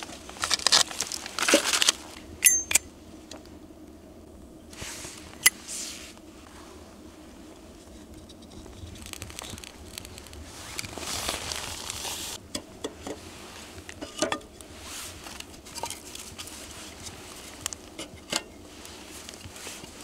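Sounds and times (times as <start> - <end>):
kindling rustling and scraping: 0.0 - 2.8, 7.8 - 20.0.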